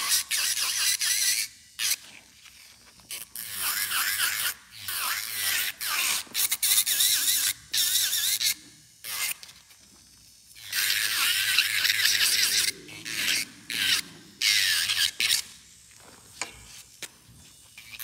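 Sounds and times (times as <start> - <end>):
nail drill grinding: 10.6 - 15.5.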